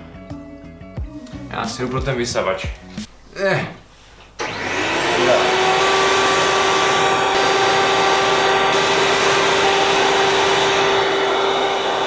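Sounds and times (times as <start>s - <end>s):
suction rushing: 4.4s - 12.0s
vacuum cleaner motor whine: 4.4s - 12.0s.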